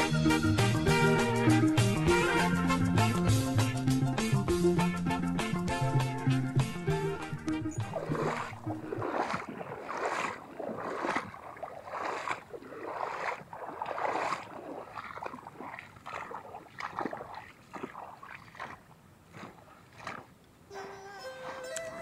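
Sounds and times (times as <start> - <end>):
footsteps on muddy grassy ground: 6.7 - 20.5.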